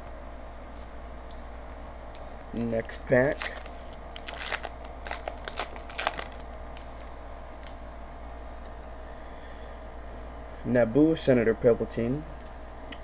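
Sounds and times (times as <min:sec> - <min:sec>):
steady low hum: 0:00.0 - 0:13.0
foil wrapper crinkling: 0:02.6 - 0:07.8.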